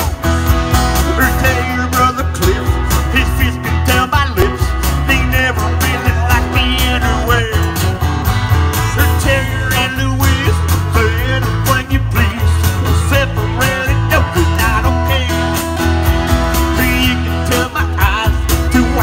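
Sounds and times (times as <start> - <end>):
live band through speakers: 0.0 - 19.0
person singing: 1.0 - 7.8, 8.8 - 15.8, 16.5 - 19.0.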